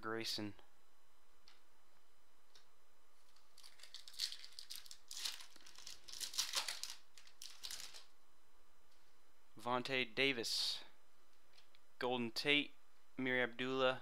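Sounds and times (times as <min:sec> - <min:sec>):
foil wrapper tearing and crinkling: 0:03.4 - 0:08.1.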